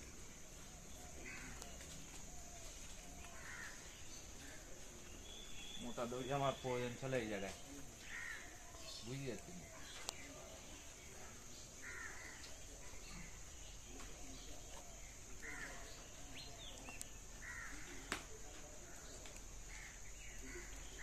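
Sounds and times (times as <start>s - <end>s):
crows cawing faintly: 0.4s - 5.2s, 7.8s - 10.3s, 11.1s - 13.6s, 14.3s - 21.0s.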